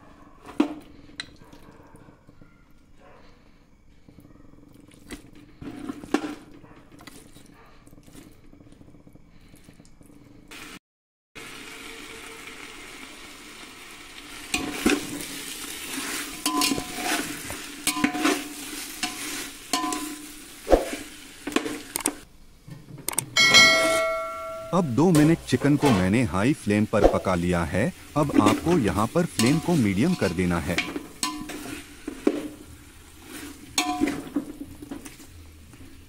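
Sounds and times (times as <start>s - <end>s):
food sizzling in a pot: 10.5s - 10.8s, 11.4s - 22.6s, 23.6s - 36.0s
metal spatula scraping pot: 14.5s - 21.9s, 27.9s - 36.0s.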